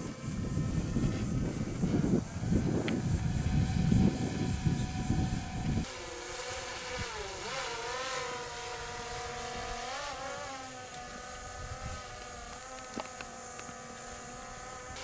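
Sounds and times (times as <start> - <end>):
motor humming: 0.0 - 15.0.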